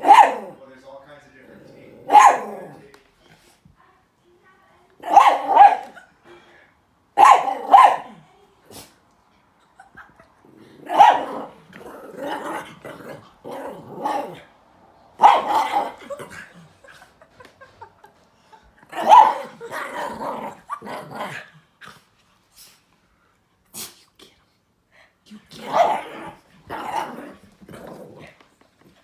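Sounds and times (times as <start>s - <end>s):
small dog barking: 0.0s - 0.6s, 2.0s - 2.8s, 5.0s - 6.0s, 7.2s - 8.2s, 10.8s - 11.6s, 15.2s - 16.3s, 18.9s - 21.4s, 25.6s - 27.3s
dog growling: 1.4s - 2.9s, 10.4s - 14.6s, 18.8s - 22.0s, 25.5s - 28.5s.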